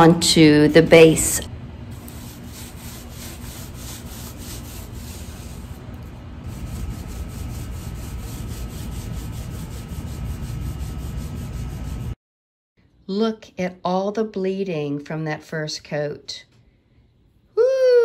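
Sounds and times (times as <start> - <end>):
paint roller rubbing on wood: 2.0 - 5.8, 6.4 - 12.2.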